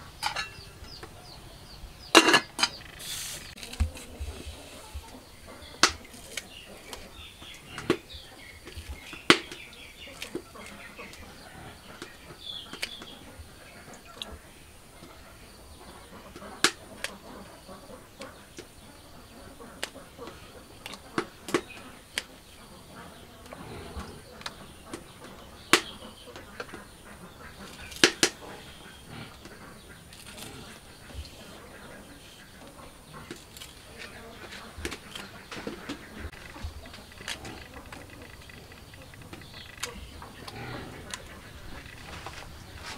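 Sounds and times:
birds chirping: 0.0 - 42.9
vegetable stems snapping: 27.8 - 28.4.

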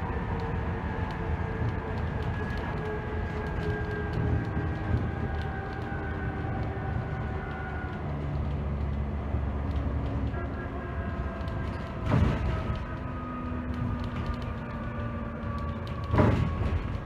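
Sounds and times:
bus diesel engine drone: 0.0 - 17.0
rattles of bus fittings: 11.5 - 13.0, 15.8 - 17.0.

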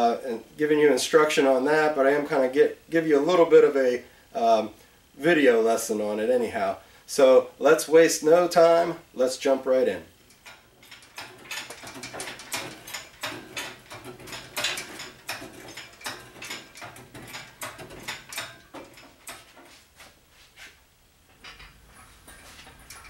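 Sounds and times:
metallic clicks and clanks: 10.2 - 19.8, 21.3 - 23.0.

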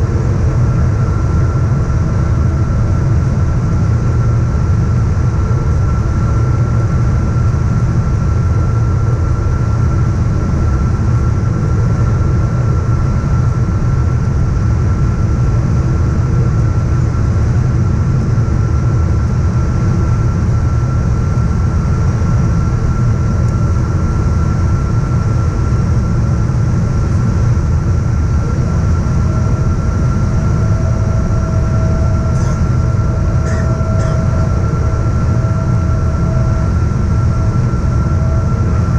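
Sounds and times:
airplane cabin engine rumble: 0.0 - 38.9
steady whine: 0.0 - 38.9
low tone: 30.4 - 38.9.

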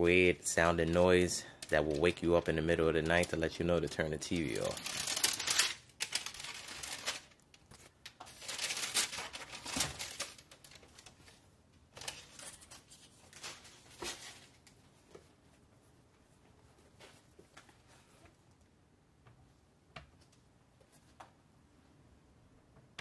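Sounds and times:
tissue paper crinkling: 0.8 - 11.4.

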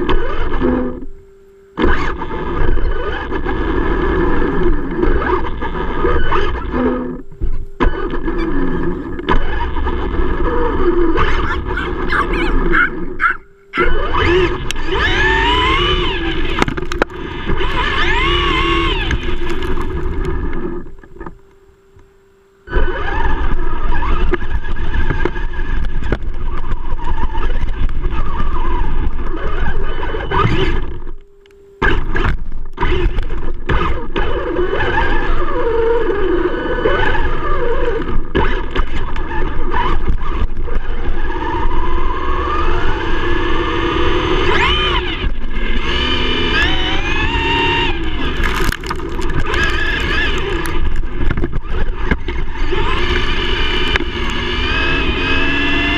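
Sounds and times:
electric motor whining: 0.0 - 55.9.

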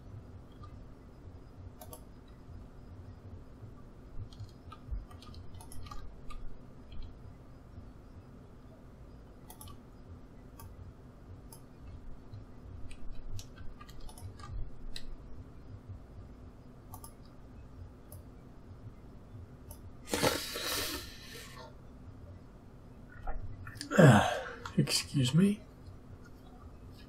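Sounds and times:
faint low hum: 0.0 - 27.0
keyboard and mouse clicks: 1.8 - 2.4, 4.2 - 7.2, 9.4 - 9.8, 10.5 - 10.8, 12.8 - 15.2, 16.9 - 17.4.

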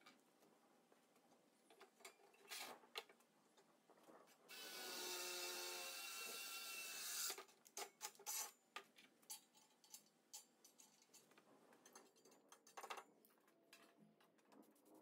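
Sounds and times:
cordless drill whining: 4.5 - 7.4.

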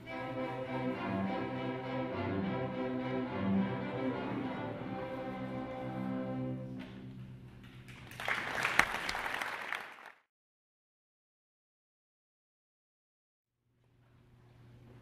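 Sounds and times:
string orchestra chord: 0.0 - 7.1
audience applause: 7.9 - 10.2.

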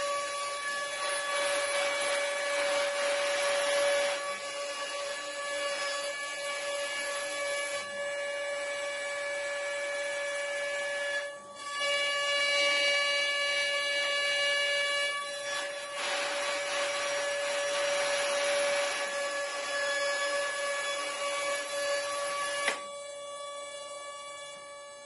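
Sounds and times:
router spindle whining: 0.0 - 25.0.

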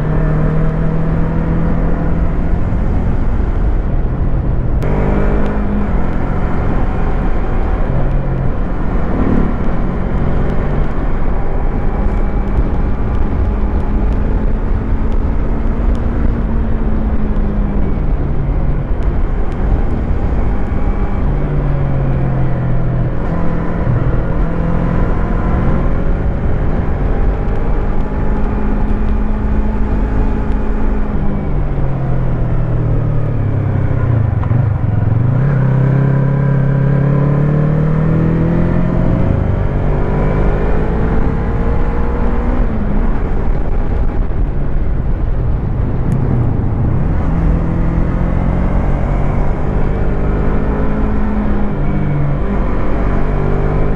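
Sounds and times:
low rumble: 1.6 - 36.6, 40.6 - 52.9
motorcycle engine running: 4.7 - 15.0.

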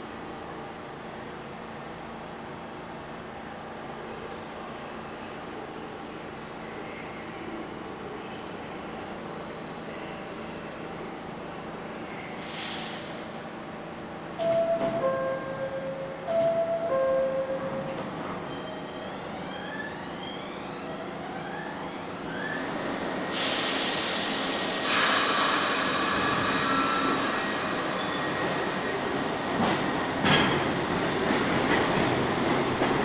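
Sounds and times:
air hiss: 12.4 - 13.3, 23.3 - 27.8
train wheels on rails: 23.1 - 33.0.

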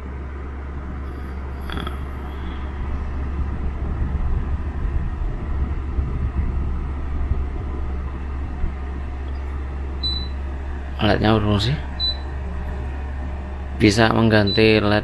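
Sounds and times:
mini fan humming: 0.0 - 15.0
short electronic beep: 10.0 - 10.4, 12.0 - 12.3.

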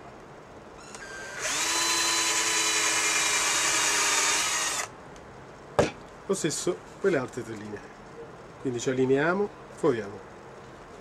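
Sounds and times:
cordless drill whining: 0.8 - 4.9.

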